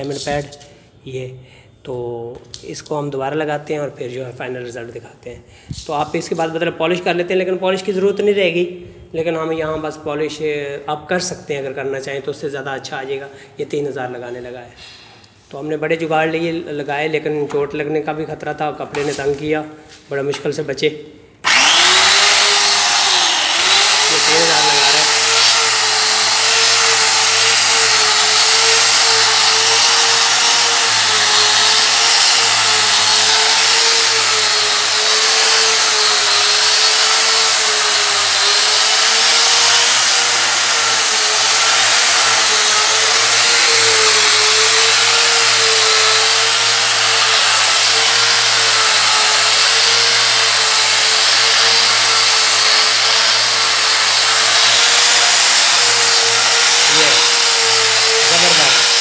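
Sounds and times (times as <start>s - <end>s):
angle grinder motor whine: 21.4s - 59.0s.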